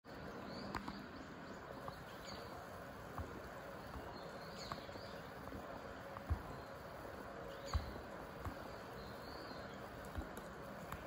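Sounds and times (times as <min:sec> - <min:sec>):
faint outdoor background noise: 0:00.0 - 0:11.0
soft clicks: 0:00.6 - 0:01.1.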